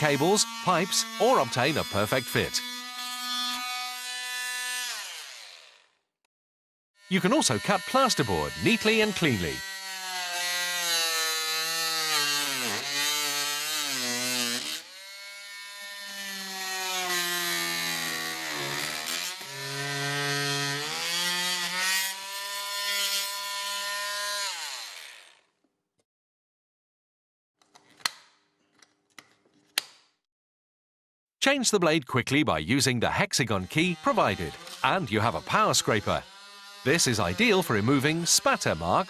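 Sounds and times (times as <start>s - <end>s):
oscillating multi-tool cutting plasterboard: 0.0s - 6.0s, 7.0s - 25.6s, 33.1s - 39.0s.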